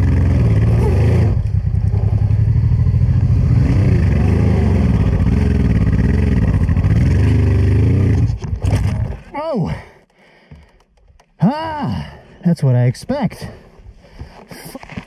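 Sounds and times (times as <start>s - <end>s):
motorcycle engine pulling hard: 0.0s - 9.3s.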